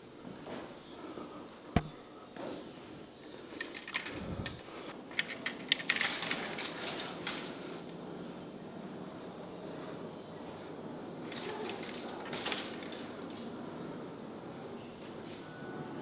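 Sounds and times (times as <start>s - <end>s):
metal gate and padlock rattling: 3.6s - 7.1s.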